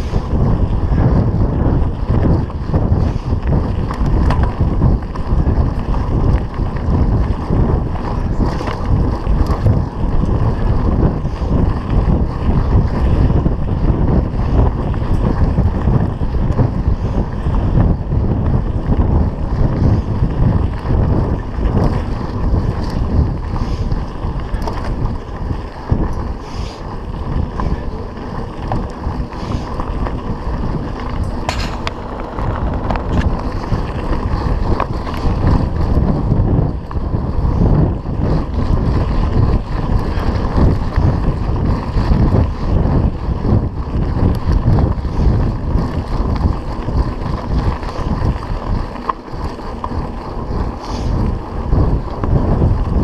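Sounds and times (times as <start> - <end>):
bike rattling over bumps: 0.0 - 53.0
wind buffeting microphone: 0.0 - 53.0
tyres crunching over stones: 27.2 - 35.4.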